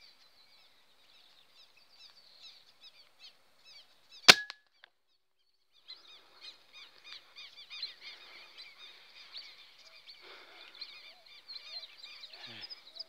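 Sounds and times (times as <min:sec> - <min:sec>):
birds chirping: 0:05.5 - 0:13.0.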